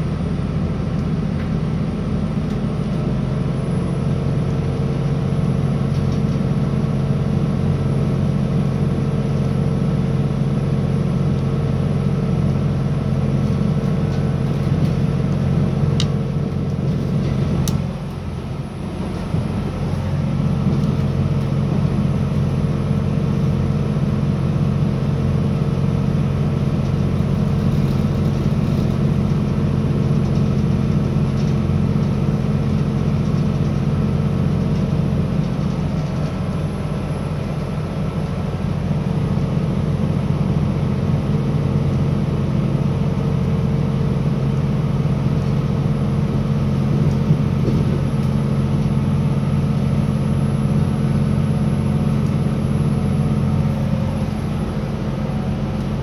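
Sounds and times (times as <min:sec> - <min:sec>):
train engine drone: 0:00.0 - 0:56.0.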